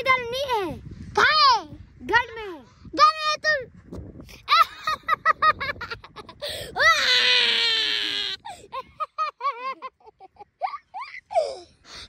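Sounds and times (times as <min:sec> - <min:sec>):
boy laughing: 0:04.3 - 0:11.8
boy screaming shrilly: 0:06.7 - 0:08.5.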